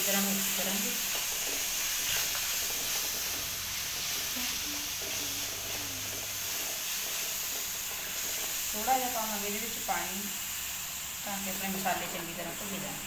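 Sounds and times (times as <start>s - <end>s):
paste sizzling in a pan: 0.0s - 13.0s
wooden spatula scraping: 0.7s - 9.1s.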